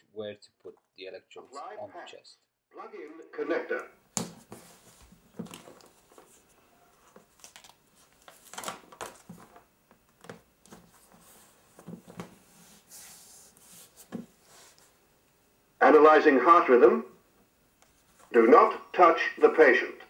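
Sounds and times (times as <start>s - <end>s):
pads peeling and crinkling: 5.1s - 11.2s.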